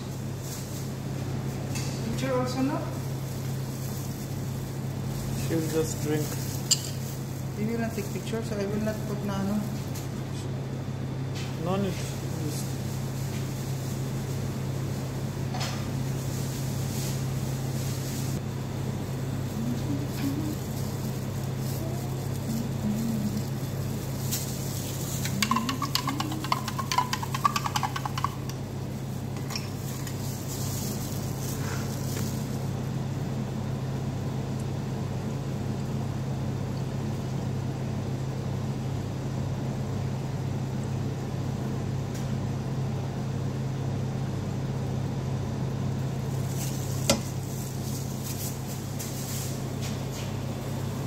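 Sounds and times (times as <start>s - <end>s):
low hum of cafe machinery: 0.0s - 51.0s
spoon clinking glass bottle: 25.2s - 28.5s.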